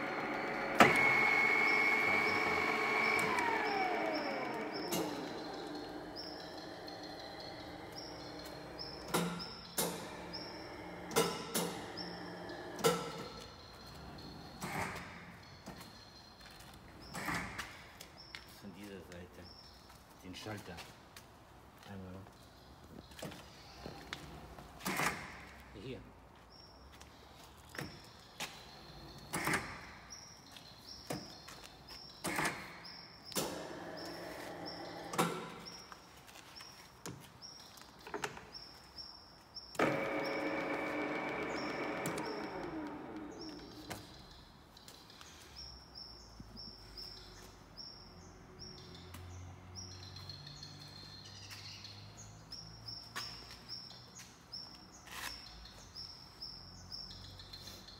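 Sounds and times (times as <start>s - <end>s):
drill spindle whirring: 0.0s - 9.1s, 39.8s - 44.0s.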